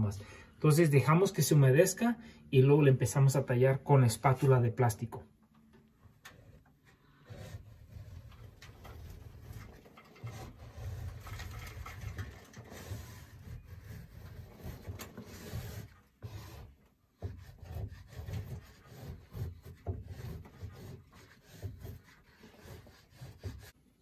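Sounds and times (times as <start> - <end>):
spatula scraping ceiling: 6.3 - 23.8.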